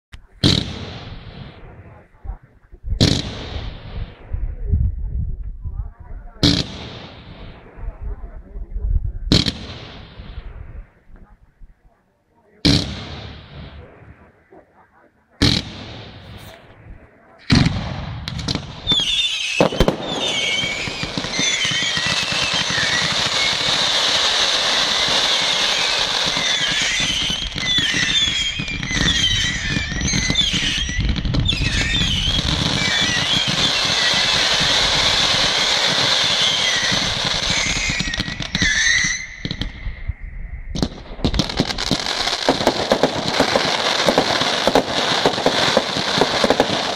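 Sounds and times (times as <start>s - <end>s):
fireworks crackling and hissing: 0.2s - 4.6s, 9.3s - 46.9s
loud firework bangs: 0.4s - 1.7s, 15.4s - 16.8s, 17.5s - 40.0s, 40.7s - 46.9s
high whistling firework squeals: 18.8s - 40.7s.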